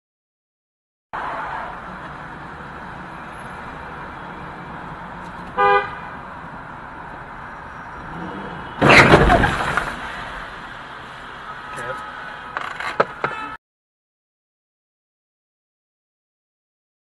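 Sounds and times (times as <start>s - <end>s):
road noise inside car: 1.2s - 13.6s
car horn toot: 5.6s - 6.1s, 11.6s - 12.3s, 13.2s - 13.6s
car collision crash: 8.8s - 10.5s.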